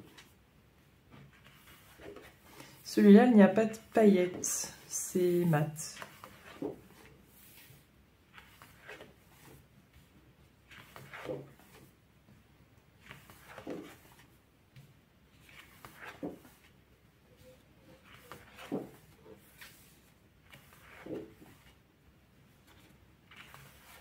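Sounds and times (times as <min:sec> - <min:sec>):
paper sheets rustling and flapping: 0:00.0 - 0:00.4, 0:01.1 - 0:02.8, 0:05.2 - 0:12.0, 0:12.9 - 0:14.4, 0:15.3 - 0:16.8, 0:17.4 - 0:21.8, 0:22.5 - 0:24.0.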